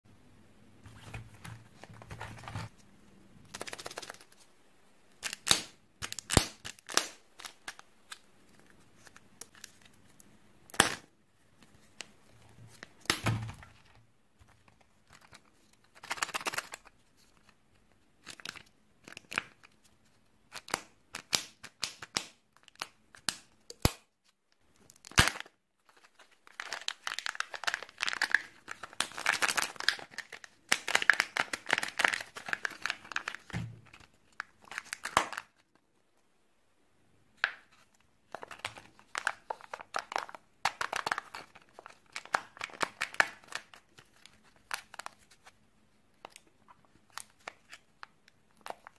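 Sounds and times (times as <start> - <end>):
plastic eggs crackling and clicking: 14.6 - 17.0, 24.6 - 35.8, 38.3 - 45.2
wrapper crinkling and tearing: 15.1 - 16.9, 24.9 - 35.8, 38.3 - 45.5.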